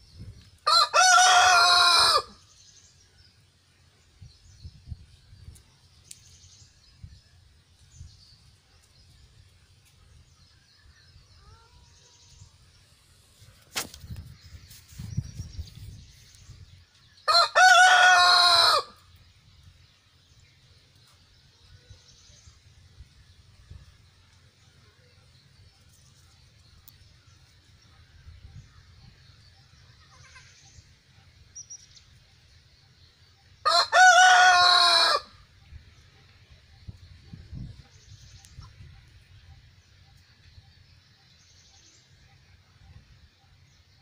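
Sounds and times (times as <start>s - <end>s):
rooster crowing: 0.6s - 2.4s, 17.3s - 19.0s, 33.6s - 35.4s.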